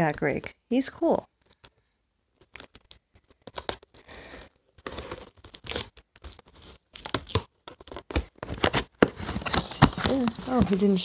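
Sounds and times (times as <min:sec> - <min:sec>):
packaging tearing and crinkling: 0:02.4 - 0:11.0.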